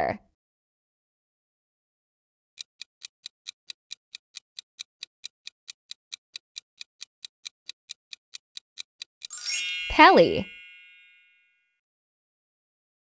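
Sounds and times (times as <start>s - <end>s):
clock-like ticking: 2.6s - 9.4s.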